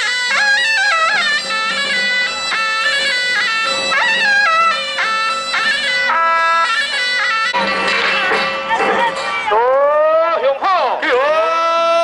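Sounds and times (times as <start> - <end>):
shawm playing sliding melody: 0.0 - 12.0
steady held drone tone: 0.4 - 7.7.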